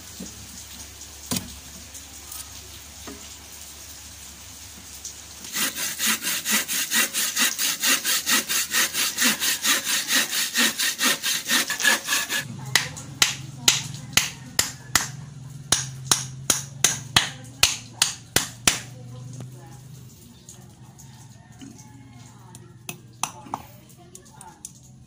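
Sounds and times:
hand saw cutting wood: 0:05.4 - 0:12.5.

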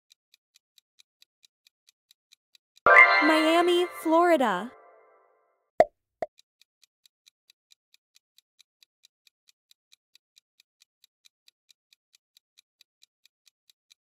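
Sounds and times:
clock ticking: 0:02.8 - 0:04.8.

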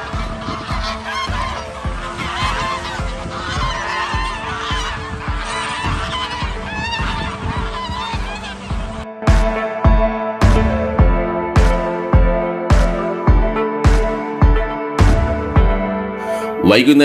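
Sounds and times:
water birds calling: 0:00.0 - 0:09.1
background music with low beat: 0:00.0 - 0:16.7.

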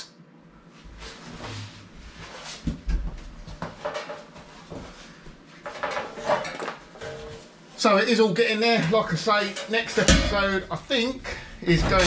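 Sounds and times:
person moving and rustling: 0:00.6 - 0:08.0.

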